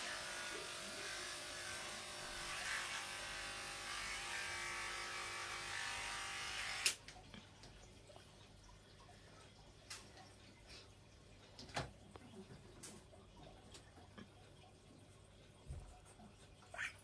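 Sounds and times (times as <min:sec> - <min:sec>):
small electric motor humming: 0:00.0 - 0:07.0.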